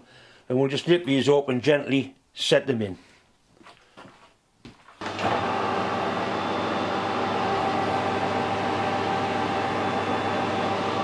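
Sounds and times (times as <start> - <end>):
metal lathe humming: 5.0 - 11.0.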